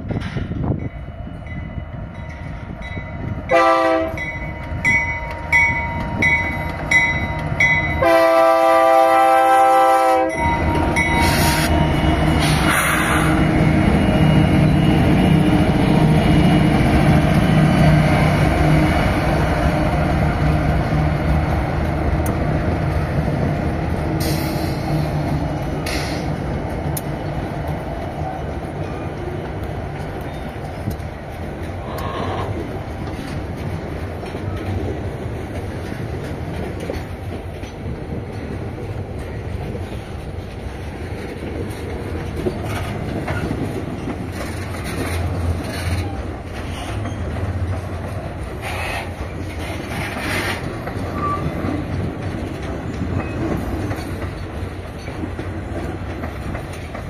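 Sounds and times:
diesel locomotive passing: 0:00.0 - 0:57.0
wheels clattering over rail joints: 0:32.5 - 0:57.0
wheel squeals: 0:48.6 - 0:51.8.

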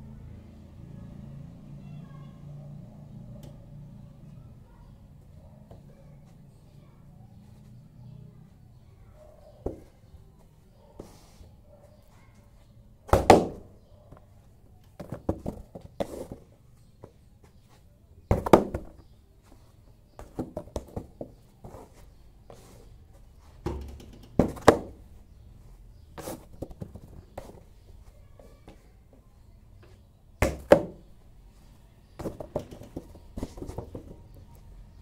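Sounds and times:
bare feet kicking and stamping: 0:13.1 - 0:13.6, 0:20.2 - 0:25.4, 0:30.4 - 0:31.1, 0:32.1 - 0:34.4.

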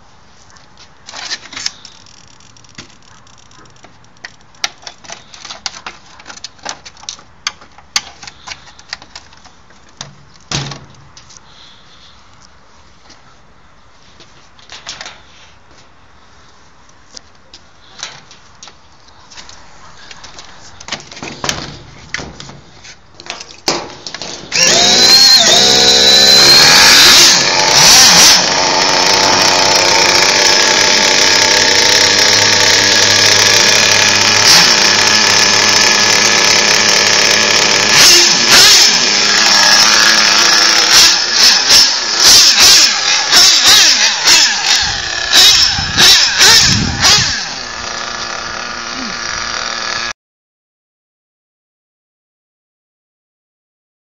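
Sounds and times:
engine revving: 0:24.5 - 0:50.1
small engine buzzing: 0:24.5 - 0:50.2.

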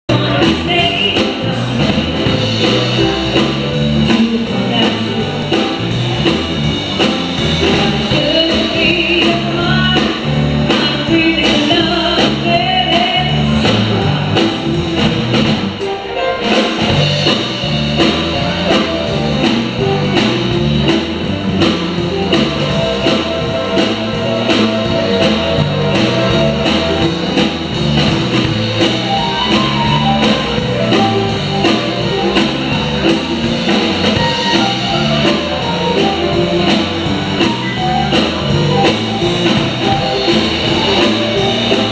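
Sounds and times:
drums: 0:00.0 - 0:41.9
woman singing into microphone: 0:00.1 - 0:02.4, 0:07.7 - 0:14.5
guitar: 0:00.1 - 0:41.9.

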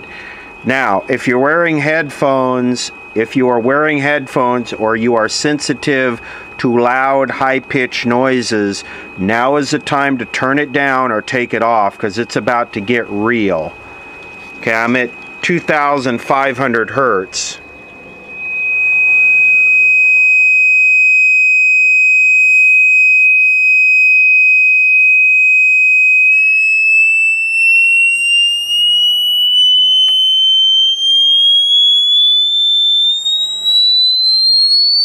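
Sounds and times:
piercing tone rising in pitch: 0:00.0 - 0:35.0.

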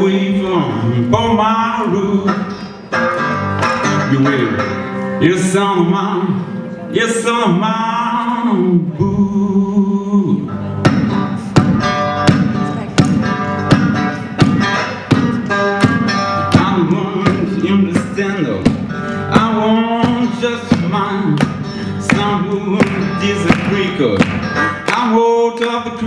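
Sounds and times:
man singing: 0:00.0 - 0:02.9, 0:03.7 - 0:12.6, 0:13.8 - 0:26.0
guitar playing: 0:00.0 - 0:26.0
steady beat: 0:10.8 - 0:25.2.

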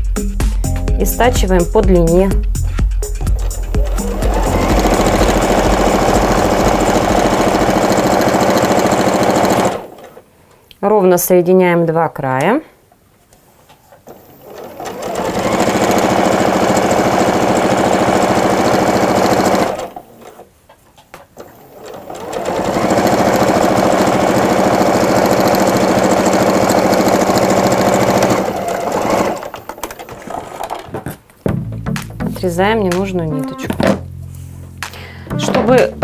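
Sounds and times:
sewing machine stitching: 0:03.2 - 0:10.2, 0:14.1 - 0:20.5, 0:21.4 - 0:30.9.

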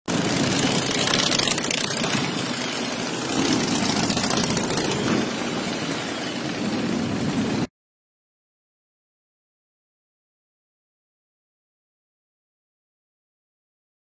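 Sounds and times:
motorcycle engines: 0:00.0 - 0:07.7
wind noise: 0:00.1 - 0:07.7.

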